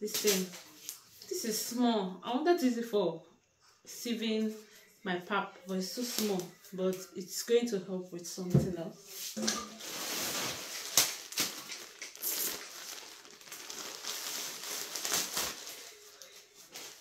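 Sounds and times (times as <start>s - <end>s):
plastic bag rustling and crinkling: 9.3s - 17.0s.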